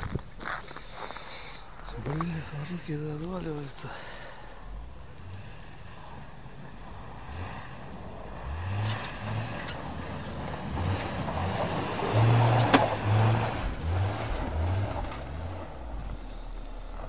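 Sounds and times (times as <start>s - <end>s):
tyres spinning in snow and dirt: 0.0s - 17.0s
engine revving: 4.4s - 17.0s.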